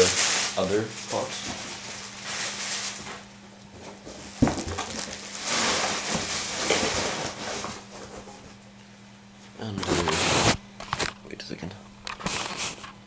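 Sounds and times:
coat and packaging rustling: 0:00.0 - 0:03.3, 0:04.3 - 0:08.0.

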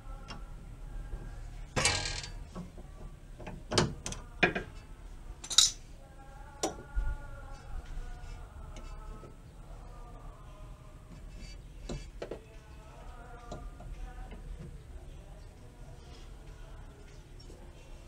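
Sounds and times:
socket and wrench clinking: 0:05.4 - 0:05.8.

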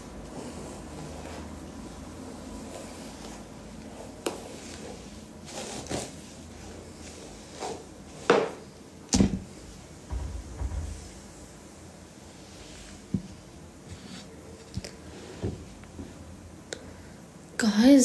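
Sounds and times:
short knocks: 0:10.1 - 0:11.2.

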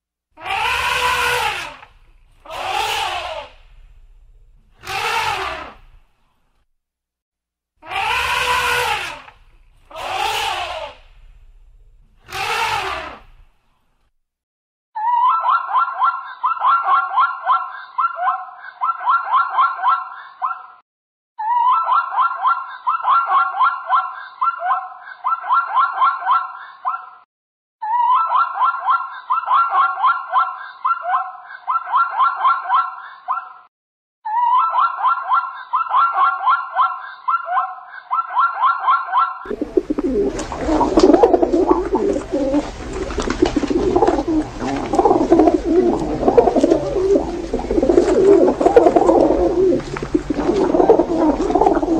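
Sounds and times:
zebra barking: 0:00.4 - 0:03.6, 0:09.9 - 0:11.0, 0:39.5 - 0:51.9
elephant trumpeting: 0:00.4 - 0:03.7, 0:04.8 - 0:05.9, 0:07.8 - 0:11.2, 0:12.2 - 0:13.4, 0:39.5 - 0:51.9
low rumble: 0:03.5 - 0:04.8, 0:11.0 - 0:12.2.

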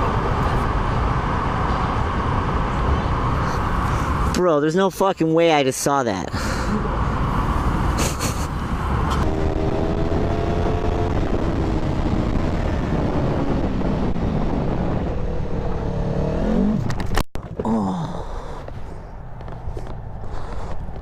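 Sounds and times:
wind rumble on microphone: 0:06.9 - 0:21.0.

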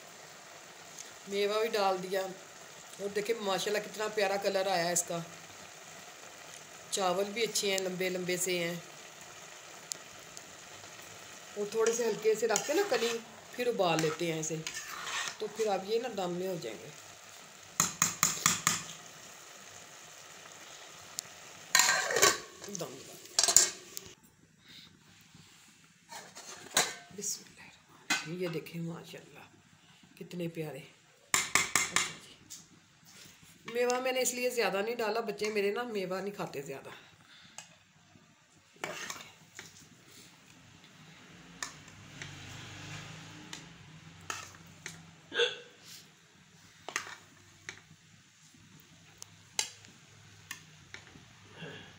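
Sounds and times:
faint sizzle of cooking: 0:00.0 - 0:51.9
spoon scraping metal pot: 0:11.7 - 0:15.9, 0:21.8 - 0:22.5, 0:38.8 - 0:39.7, 0:44.3 - 0:44.6.

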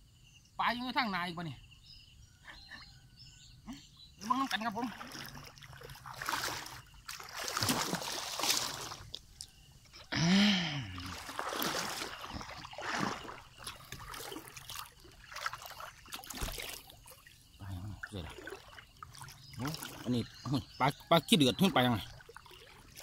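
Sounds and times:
water sloshing and splashing: 0:04.2 - 0:10.1, 0:10.8 - 0:23.0.

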